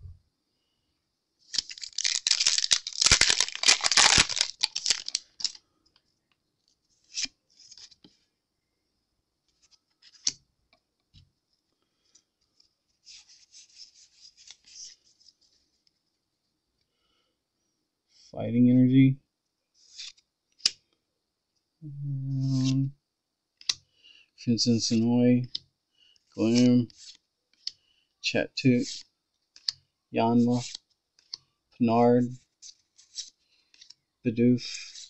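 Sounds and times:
foil wrapper crinkling: 1.5s - 5.6s
cards rustling: 1.5s - 6.0s, 6.8s - 8.2s, 9.5s - 10.4s, 11.9s - 15.9s, 19.8s - 20.8s, 22.4s - 22.8s, 26.2s - 27.8s, 28.7s - 31.5s, 32.4s - 34.0s, 34.6s - 35.0s
cards sliding as shuffled: 7.0s - 8.2s, 9.5s - 10.4s, 12.9s - 15.8s, 19.8s - 20.8s, 22.4s - 22.8s, 26.2s - 27.8s, 28.8s - 29.8s, 32.5s - 34.0s, 34.7s - 35.0s.

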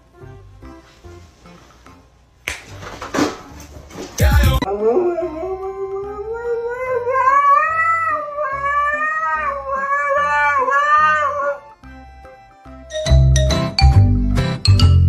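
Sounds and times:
dog howling: 4.7s - 11.7s.

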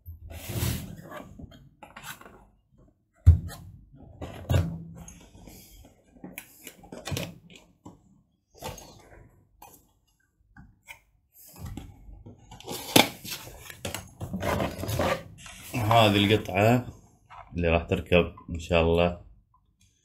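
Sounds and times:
cardboard packaging rustling: 12.6s - 16.5s.

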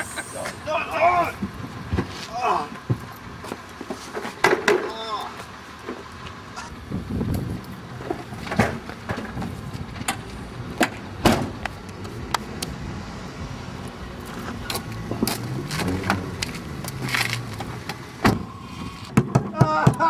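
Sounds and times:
plastic tricycle knocks and clunks: 8.0s - 10.2s, 19.1s - 20.0s
car door opening: 14.4s - 19.2s.

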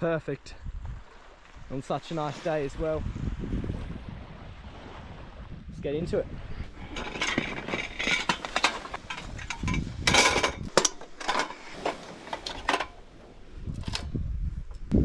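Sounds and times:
camp cooking gear clanking: 6.4s - 14.8s.

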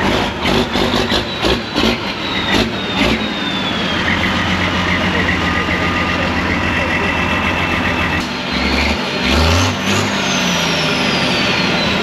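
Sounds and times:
diesel truck engine revving: 0.0s - 12.0s.

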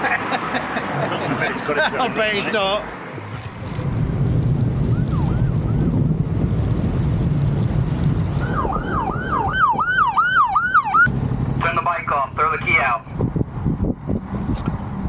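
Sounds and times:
wind rumble: 2.9s - 15.0s
police siren yelping: 8.4s - 11.1s.

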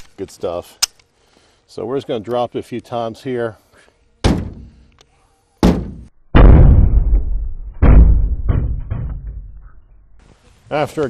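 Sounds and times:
rifle knocking on truck bed: 4.2s - 4.7s
heavy thuds: 4.2s - 4.8s, 5.6s - 9.8s.

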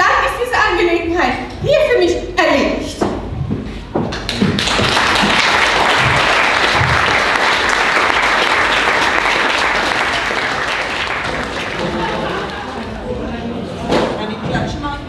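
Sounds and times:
audience applauding: 4.2s - 13.0s.

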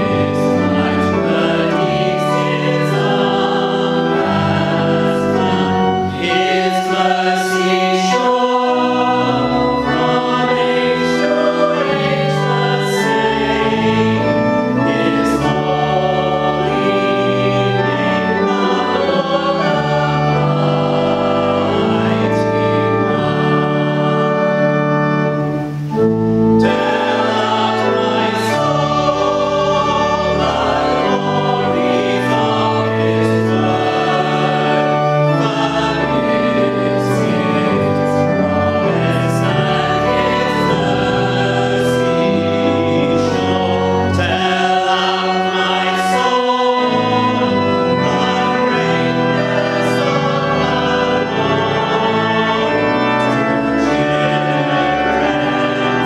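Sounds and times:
choir singing sacred music: 0.0s - 56.0s.

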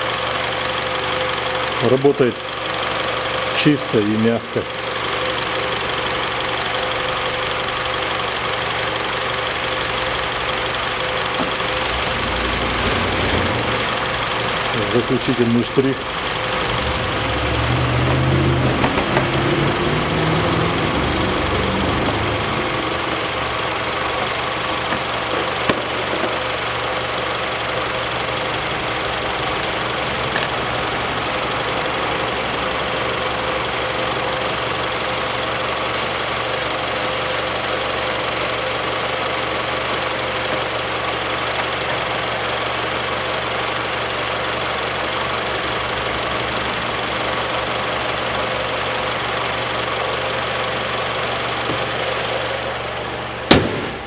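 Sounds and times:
car engine idling: 0.0s - 54.0s
ratchet clicking: 36.0s - 40.6s
car bonnet shutting thud: 53.5s - 54.0s.

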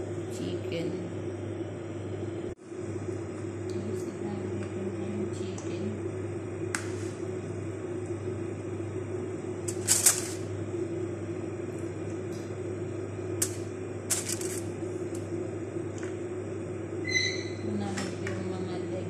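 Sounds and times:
steady low hum: 0.0s - 19.0s
aluminium foil crinkling: 13.4s - 14.7s.

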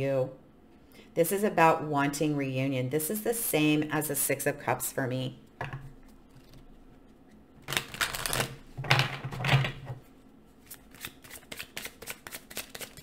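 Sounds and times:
cards shuffling: 7.6s - 8.6s, 10.6s - 13.0s.

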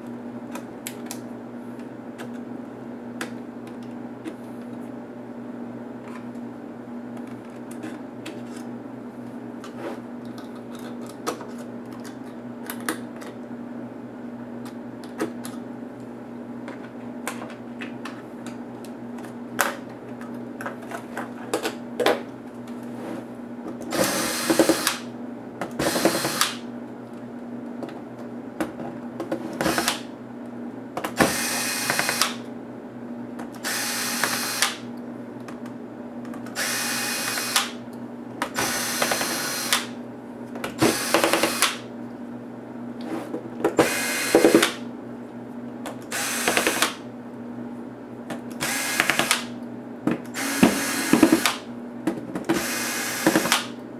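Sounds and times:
electric screwdriver whirring: 23.9s - 25.0s, 25.8s - 26.6s, 29.6s - 30.1s, 31.2s - 32.4s, 33.6s - 34.8s, 36.6s - 37.8s, 38.6s - 39.9s, 40.8s - 41.8s, 43.8s - 44.8s, 46.1s - 47.0s, 48.6s - 49.5s, 50.3s - 51.6s, 52.6s - 53.7s.

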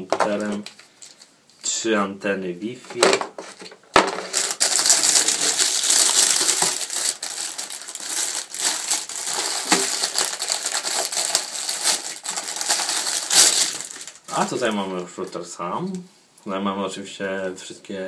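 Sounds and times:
plastic wrapping crinkling: 4.0s - 15.5s.

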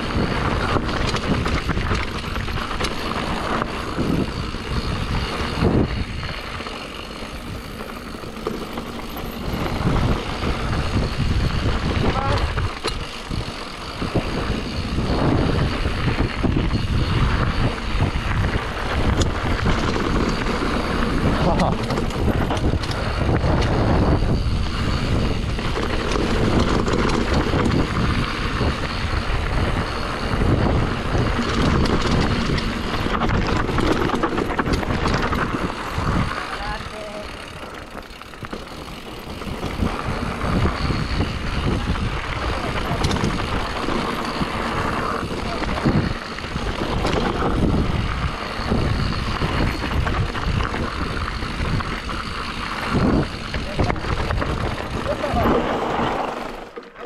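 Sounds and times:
tyres rolling on dirt: 0.0s - 57.0s
wind rumbling on microphone: 0.0s - 57.0s
bike knocks and rattles: 0.1s - 57.0s.

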